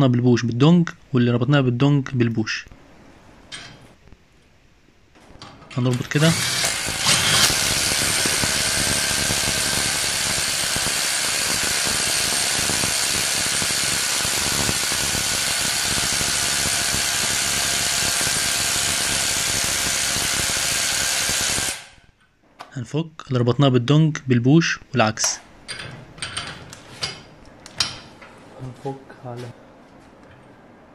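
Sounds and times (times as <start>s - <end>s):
impact wrench hammering: 6.0s - 21.9s.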